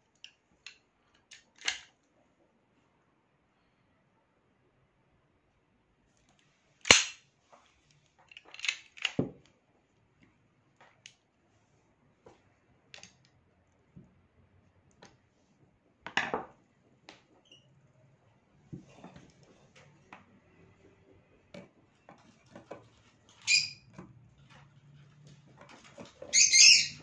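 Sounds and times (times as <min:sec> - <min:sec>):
pistol parts clicking and clacking: 0:00.2 - 0:01.9, 0:06.8 - 0:07.2, 0:08.2 - 0:09.3.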